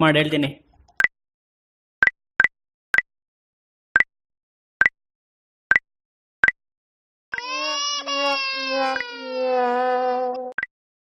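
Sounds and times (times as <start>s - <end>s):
whining cry-like sound: 7.4s - 10.5s.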